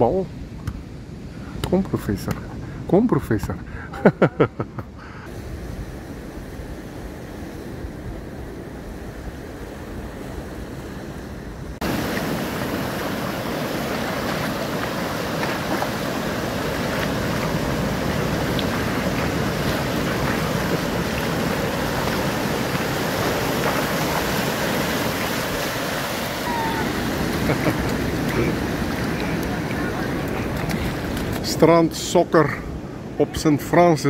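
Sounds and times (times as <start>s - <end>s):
wind on microphone: 5.0s - 31.5s
waves breaking: 5.0s - 34.0s.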